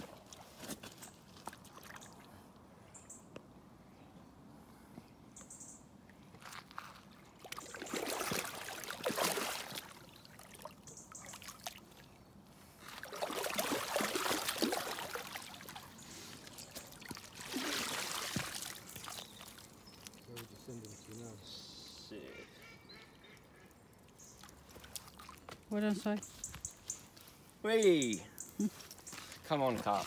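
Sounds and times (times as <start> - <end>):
water splashing and sloshing: 0.0 - 2.7, 6.1 - 21.0, 23.9 - 26.2.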